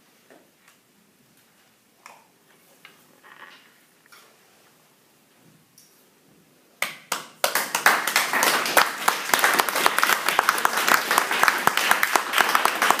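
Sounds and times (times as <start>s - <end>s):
audience clapping: 6.8s - 13.0s.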